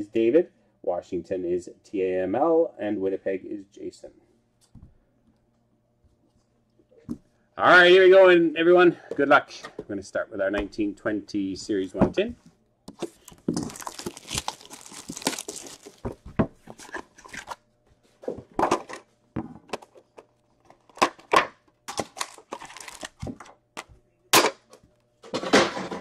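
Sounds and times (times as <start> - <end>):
plastic wrap tearing: 13.0 - 16.2, 22.0 - 23.4
foil packs crinkling: 13.0 - 17.6, 22.0 - 23.5.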